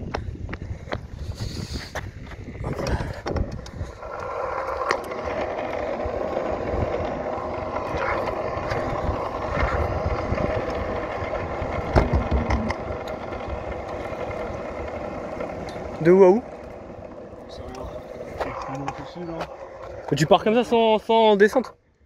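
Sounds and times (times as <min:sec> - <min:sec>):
scooter wheels rolling on asphalt: 0:00.0 - 0:21.7.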